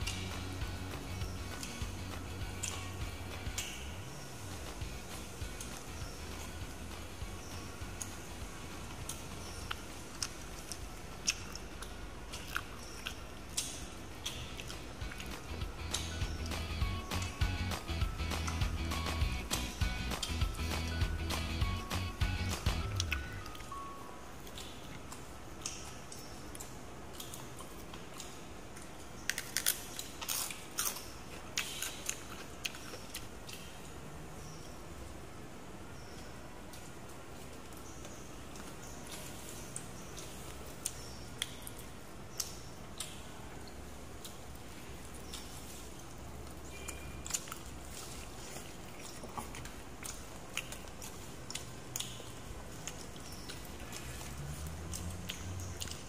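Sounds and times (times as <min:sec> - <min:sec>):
mouth clicks: 0:00.0 - 0:04.0, 0:04.6 - 0:23.8
person chewing food: 0:04.7 - 0:23.8, 0:24.4 - 0:33.7, 0:42.9 - 0:56.0
crisp eating crunches: 0:24.4 - 0:34.0.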